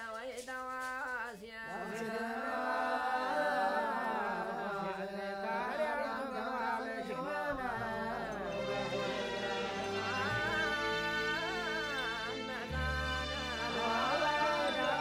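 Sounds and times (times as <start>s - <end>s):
person singing ornamented melody: 5.2s - 15.0s.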